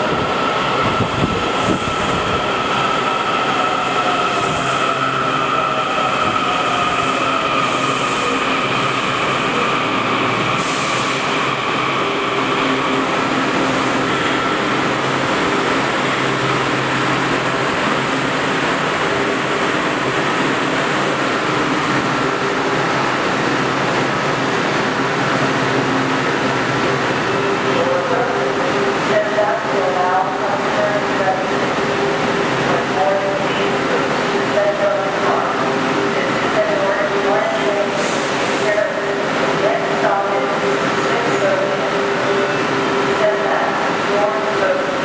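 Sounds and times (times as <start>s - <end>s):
train wheels on rails: 0.0s - 27.7s.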